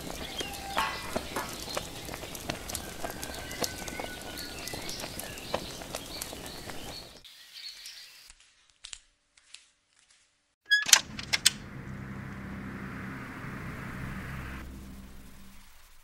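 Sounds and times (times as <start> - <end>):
door squeak: 10.6 - 11.6
door latch clattering: 10.7 - 11.6
steady low hum: 11.0 - 16.0.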